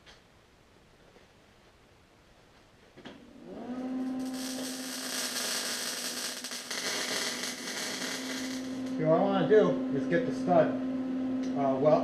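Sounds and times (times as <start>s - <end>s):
electric welder humming: 3.2s - 9.3s
welding arc crackling: 3.9s - 9.1s.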